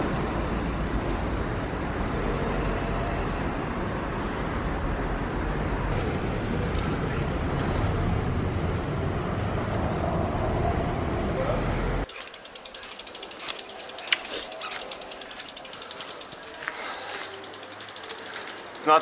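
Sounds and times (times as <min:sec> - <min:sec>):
wind and road noise: 0:00.0 - 0:19.0
bicycle freewheel ratchet clicking: 0:12.0 - 0:19.0.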